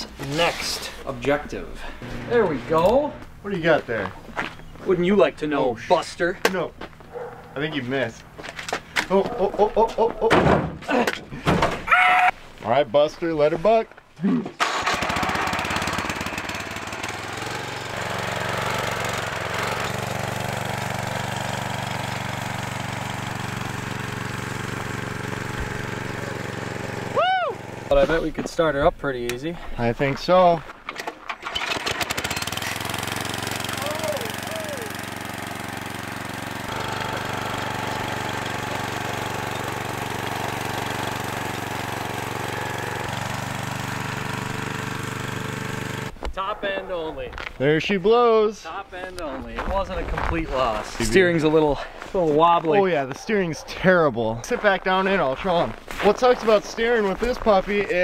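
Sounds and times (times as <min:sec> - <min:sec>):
go-kart engine running: 0:14.6 - 0:28.0, 0:31.4 - 0:46.1.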